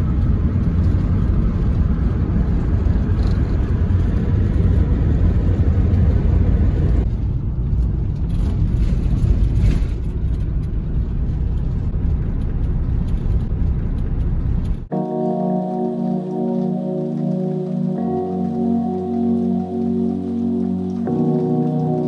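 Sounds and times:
car cabin road rumble: 0.0 - 14.9
music with ringing notes: 14.9 - 22.0.

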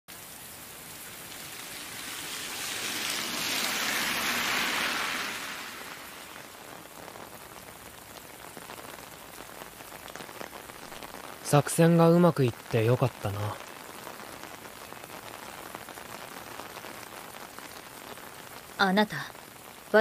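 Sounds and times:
steady rain falling: 0.1 - 20.0
car tyres hissing on wet road: 0.6 - 6.9.

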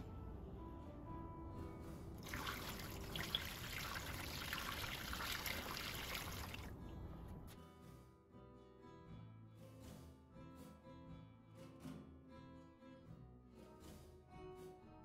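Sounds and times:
liquid pouring through a funnel: 2.2 - 6.8.

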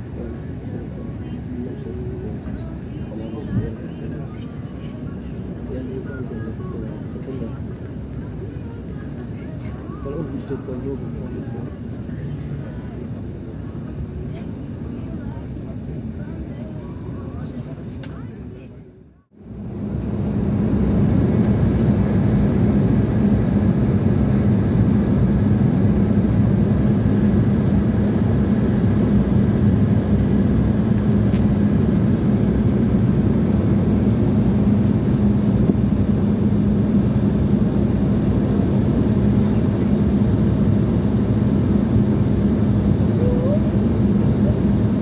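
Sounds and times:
jet engines: 0.0 - 18.6, 19.4 - 45.0
steady low hum: 19.2 - 45.0.

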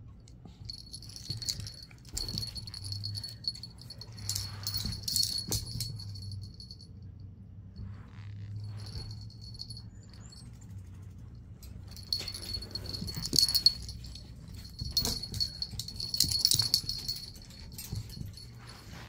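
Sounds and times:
dog collar tags jingling: 0.7 - 6.8, 11.6 - 19.0.

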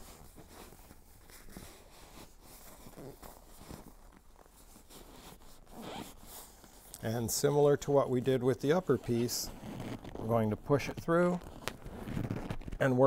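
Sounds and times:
seat cover rustling: 0.0 - 7.6, 8.7 - 12.8.

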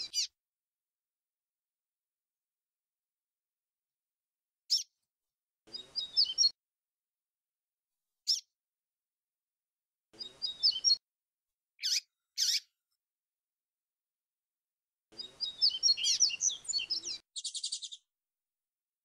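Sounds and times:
bird sharp chirps: 0.0 - 0.3, 4.7 - 4.9, 5.7 - 6.6, 8.3 - 8.5, 10.2 - 11.0, 11.8 - 12.7, 15.2 - 18.1
bird warbled song phrases: 0.0 - 0.4, 5.7 - 6.6, 10.2 - 11.0, 11.8 - 12.7, 15.1 - 18.1.

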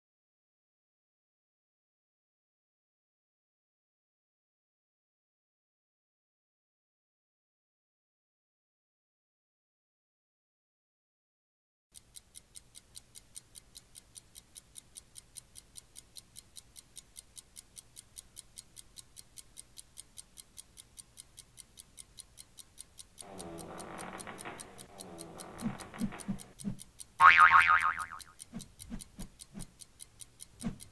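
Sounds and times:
clock ticking: 12.0 - 30.9.

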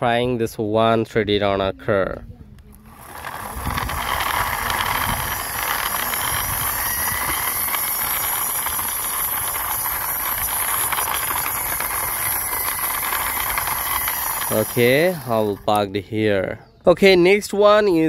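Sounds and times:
toy car wheels rolling on concrete: 2.6 - 16.6.

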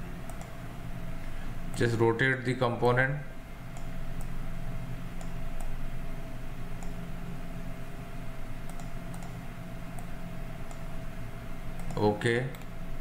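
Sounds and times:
low electrical hum: 0.0 - 13.0
computer mouse clicks: 0.2 - 0.6, 3.7 - 4.4, 5.2 - 5.8, 6.8 - 7.0, 8.6 - 10.9, 11.7 - 12.7.

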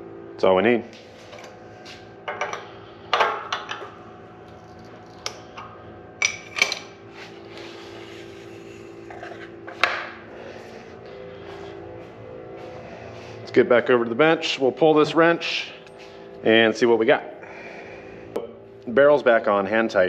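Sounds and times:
shop machinery hum: 0.0 - 20.0
steel tools clanking: 5.2 - 6.9.

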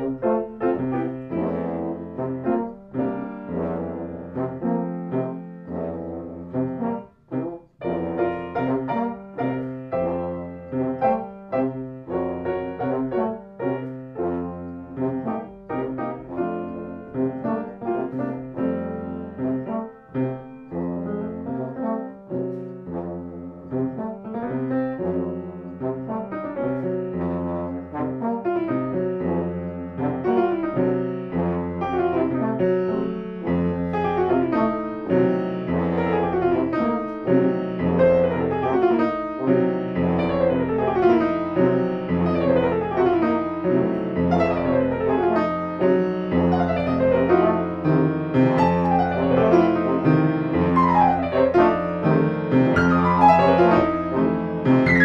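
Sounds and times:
grand piano chords and runs: 0.0 - 55.0.

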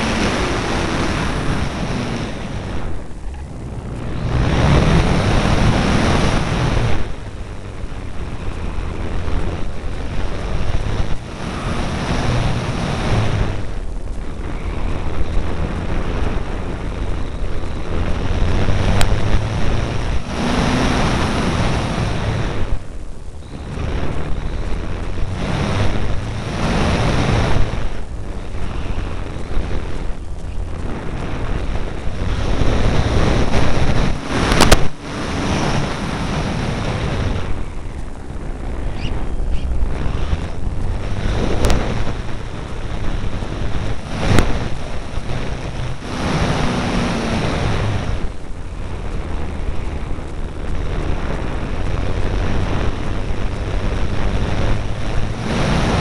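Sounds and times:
electric motor and propeller: 0.0 - 56.0
wind rushing over microphone: 0.0 - 56.0.

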